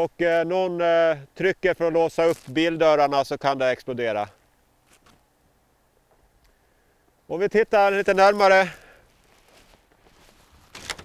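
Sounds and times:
footsteps in packed snow: 2.0 - 2.8, 8.0 - 10.8.

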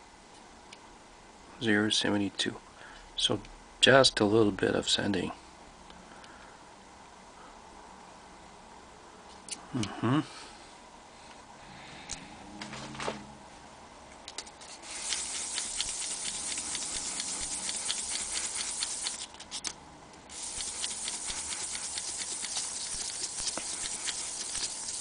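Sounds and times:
metal rubbed on sandpaper: 14.7 - 19.3, 20.3 - 25.0.

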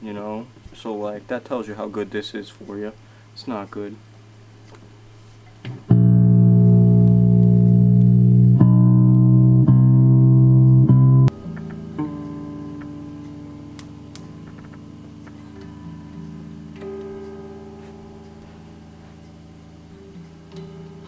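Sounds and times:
guitar single notes plucked: 5.6 - 21.0
electric guitar strummed: 5.7 - 21.0.

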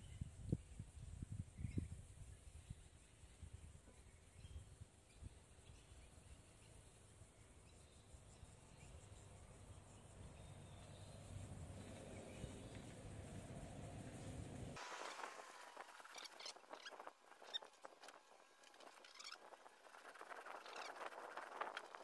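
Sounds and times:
high insect hum: 0.0 - 22.0
faint bird calls: 15.6 - 21.9.

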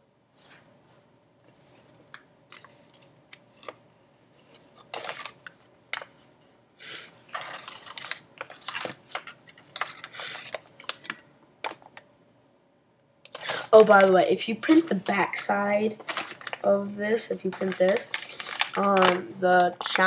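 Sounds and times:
paper rustling and crinkling: 4.4 - 5.6, 7.3 - 12.0, 13.3 - 20.0.

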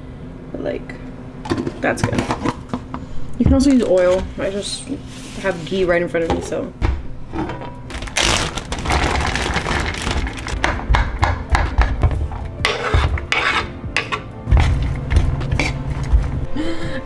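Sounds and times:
knife scraping cutting board: 12.6 - 14.2
wooden spoon scraping frying pan: 12.6 - 16.1.

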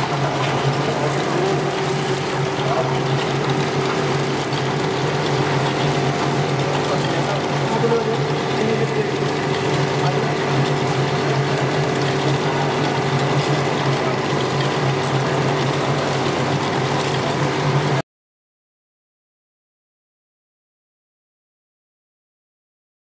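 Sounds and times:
constant machine hum: 0.0 - 18.0
winding machine running: 0.0 - 18.0.

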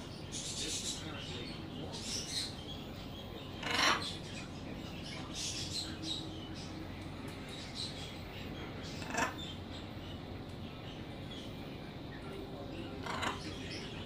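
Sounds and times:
parrot squeaky chatter: 3.6 - 4.2, 8.9 - 9.6, 13.0 - 13.5.

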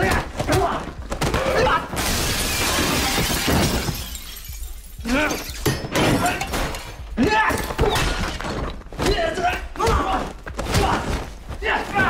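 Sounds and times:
men grunting and straining: 0.0 - 2.0
loud shattering crash: 2.0 - 6.9.

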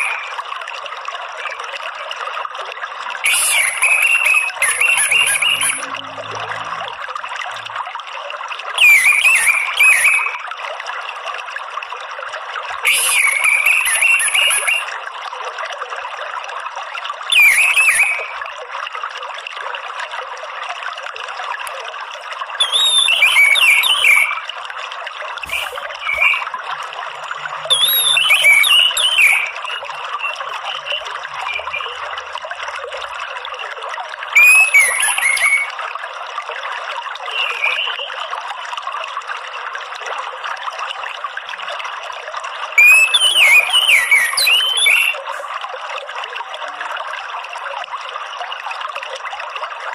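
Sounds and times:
trickling water: 0.0 - 49.9
bird twittering: 3.5 - 5.8, 25.4 - 26.5, 27.7 - 32.0.

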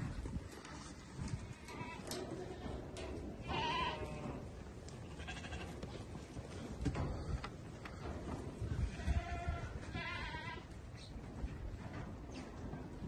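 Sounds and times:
sheep bleating: 3.4 - 4.4.

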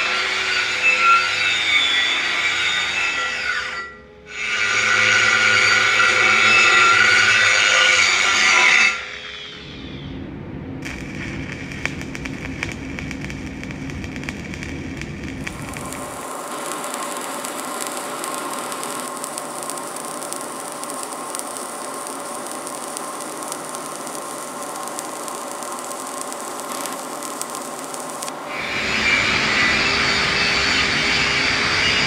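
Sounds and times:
welding arc crackling and hissing: 0.0 - 10.0, 10.8 - 32.0
low hum: 9.5 - 32.0.

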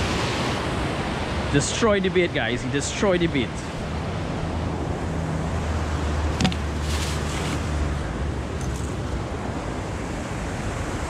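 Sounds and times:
brief rustle: 6.4 - 7.6.

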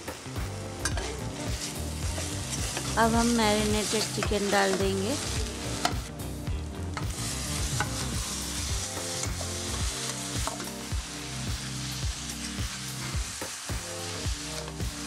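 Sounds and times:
background music: 0.0 - 15.0
chicken sizzling in oil: 0.0 - 15.0
metal spoon scraping a pan: 0.8 - 3.0.

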